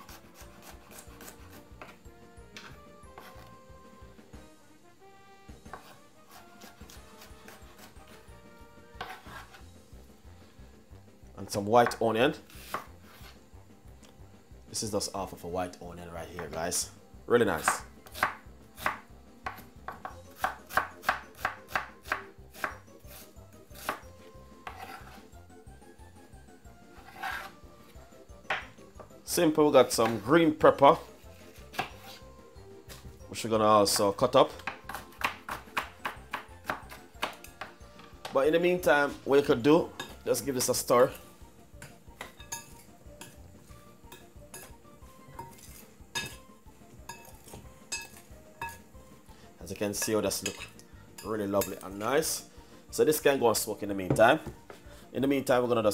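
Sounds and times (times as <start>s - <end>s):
knife chopping on wooden board: 0.0s - 2.0s, 2.6s - 3.5s, 5.6s - 8.2s, 9.0s - 9.6s, 11.8s - 13.4s, 17.6s - 25.2s, 27.0s - 27.5s, 29.9s - 30.3s, 31.5s - 32.2s, 33.9s - 38.4s
metal spoon clinking on glass bowl: 42.2s - 43.4s, 45.4s - 46.4s, 47.1s - 48.8s, 50.0s - 51.8s.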